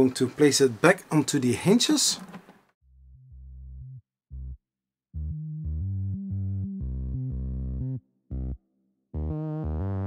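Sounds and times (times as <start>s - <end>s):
low bass: 2.8s - 10.0s
synthesizer notes: 5.2s - 10.0s.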